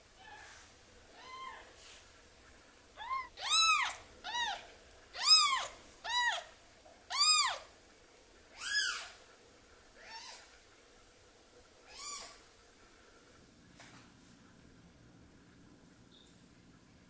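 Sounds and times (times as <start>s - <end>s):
kitten mewing: 3.0s - 4.6s, 5.2s - 6.4s.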